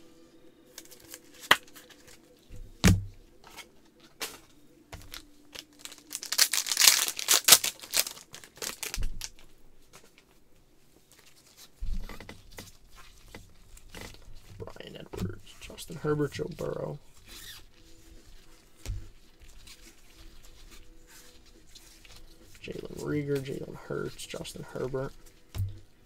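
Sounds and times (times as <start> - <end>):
cards and plastic sleeves clicking: 0.7 - 2.3, 3.4 - 10.3
foil pack tearing open: 0.8 - 2.2, 5.0 - 9.4.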